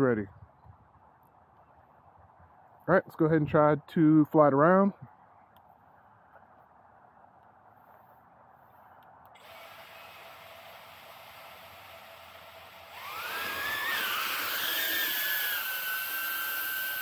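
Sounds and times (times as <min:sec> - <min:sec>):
drone motors whining: 0:09.4 - 0:17.0.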